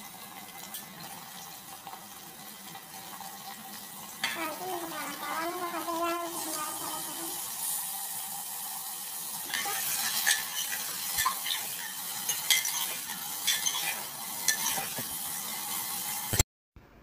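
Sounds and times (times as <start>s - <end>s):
meat sizzling in hot oil: 0.0s - 16.4s
metal ladle clinking and scraping: 9.5s - 15.0s.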